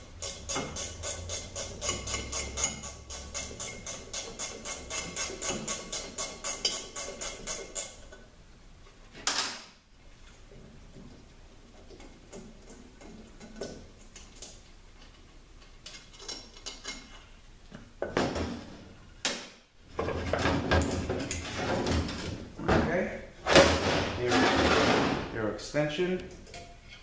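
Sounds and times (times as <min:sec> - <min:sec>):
metallic clanks: 0:00.2 - 0:08.2.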